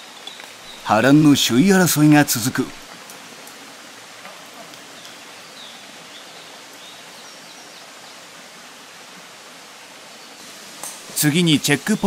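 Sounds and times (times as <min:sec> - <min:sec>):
outdoor background hiss: 0:00.0 - 0:12.0.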